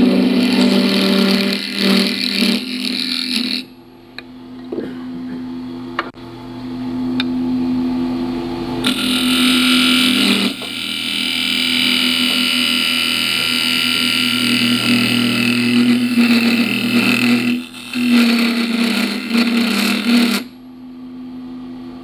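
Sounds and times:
turning tool scraping wood: 0.0s - 3.7s, 8.8s - 20.5s
wood lathe motor hum: 0.0s - 3.7s, 8.8s - 20.6s.

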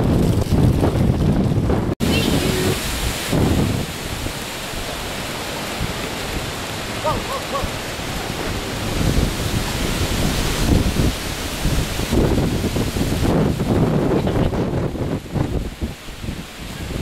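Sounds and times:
storm wind on microphone: 0.0s - 17.0s.

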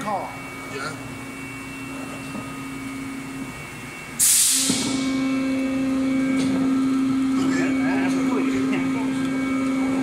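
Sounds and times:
machine humming: 0.0s - 10.0s
loud hiss of air: 4.2s - 5.0s.

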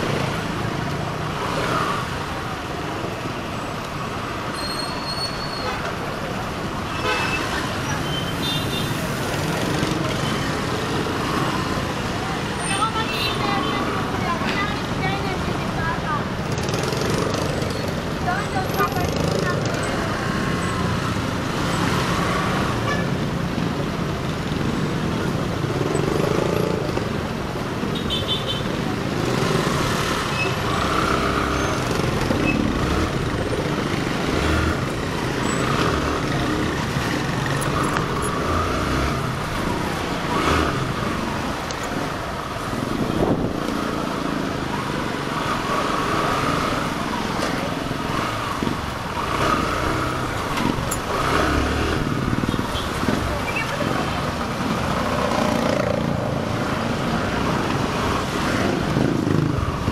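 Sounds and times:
passing vehicle engines: 0.0s - 59.9s.

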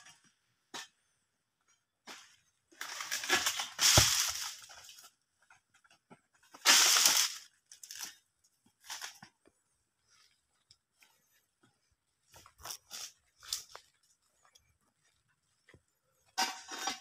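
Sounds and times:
palm frond rustling down trunk: 2.8s - 5.0s
frond thudding on ground: 3.1s - 4.6s.

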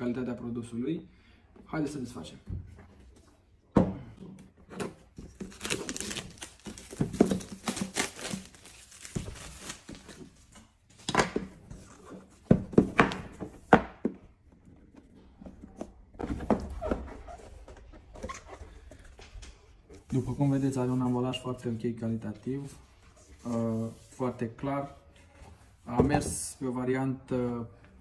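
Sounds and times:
shrink-wrap tearing and crinkling: 5.3s - 10.1s.

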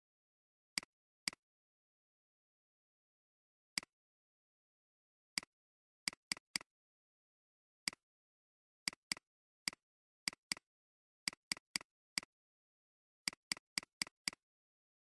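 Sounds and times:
computer mouse clicking: 13.3s - 14.4s.

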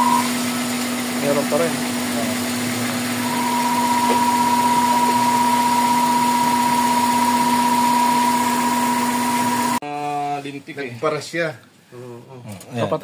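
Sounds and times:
high-pitched whistle: 0.0s - 0.5s, 3.2s - 9.8s
car engine idling: 0.0s - 9.8s.

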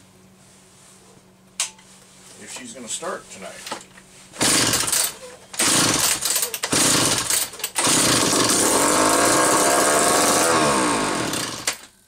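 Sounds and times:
chainsaw engine running: 4.4s - 11.9s.

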